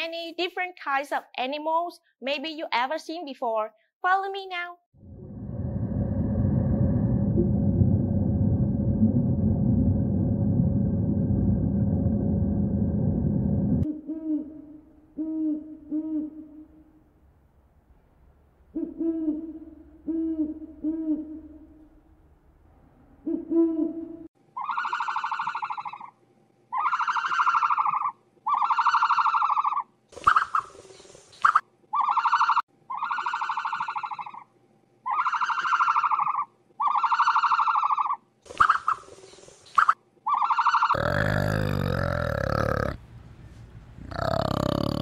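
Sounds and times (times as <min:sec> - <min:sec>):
low rumble: 0:05.0 - 0:13.9
animal calling in steady notes: 0:23.2 - 0:30.6, 0:31.9 - 0:38.2, 0:40.2 - 0:43.0, 0:44.0 - 0:45.0
harsh noisy animal call: 0:40.4 - 0:43.0, 0:44.0 - 0:45.0.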